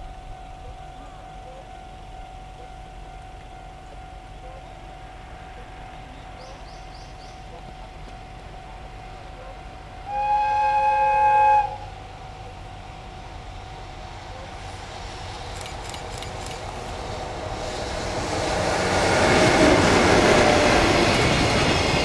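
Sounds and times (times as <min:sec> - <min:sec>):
freight train running noise: 0:00.0 - 0:22.0
locomotive whistle blast: 0:10.0 - 0:12.0
sharp clicks: 0:15.5 - 0:16.7.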